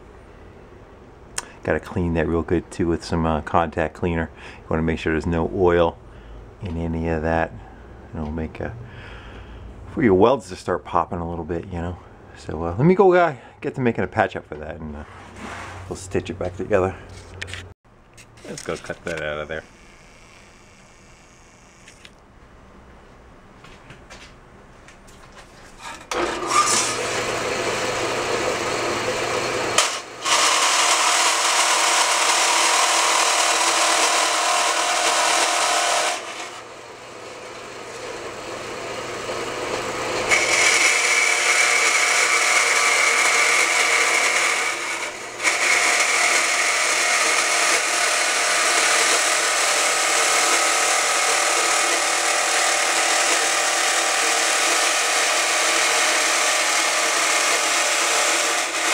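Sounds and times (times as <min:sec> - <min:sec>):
bandsaw cutting steel: 0:25.9 - 0:58.9.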